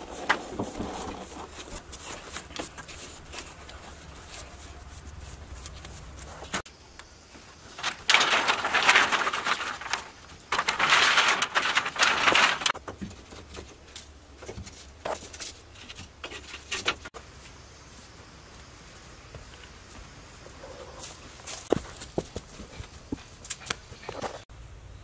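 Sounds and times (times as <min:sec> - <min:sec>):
bamboo slats clattering: 0:07.6 - 0:17.2.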